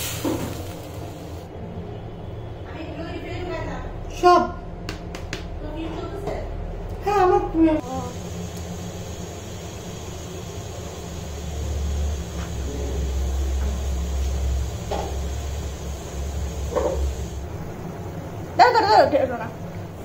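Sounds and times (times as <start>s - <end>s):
low mechanical rumble: 5.6s - 20.0s.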